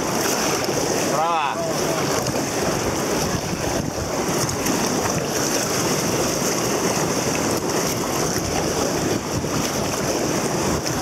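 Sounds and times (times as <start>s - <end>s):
river water rushing: 0.0s - 11.0s
wind buffeting microphone: 0.0s - 11.0s.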